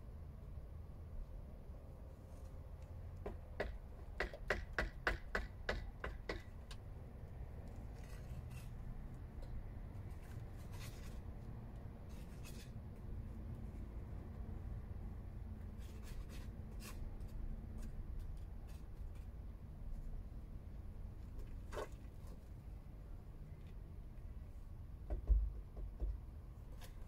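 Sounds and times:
hand tool tapping on masonry: 0:03.2 - 0:06.8, 0:25.1 - 0:26.2
low steady rumble: 0:06.0 - 0:26.7
soft scrapes: 0:07.7 - 0:09.0, 0:10.0 - 0:12.8.

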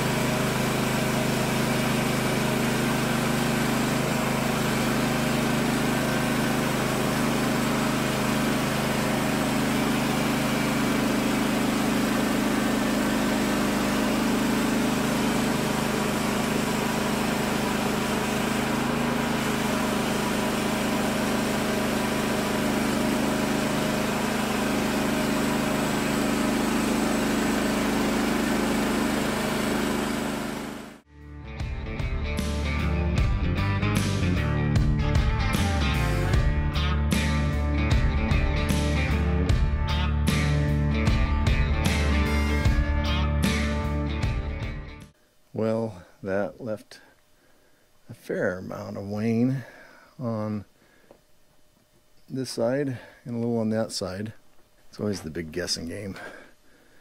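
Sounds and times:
bandsaw mill sawing log: 0:00.0 - 0:31.0.

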